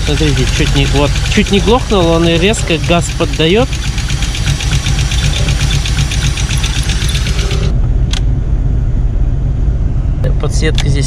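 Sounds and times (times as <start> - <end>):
fast even ticking: 0.0 - 7.7
car engine idling rough: 0.0 - 9.4.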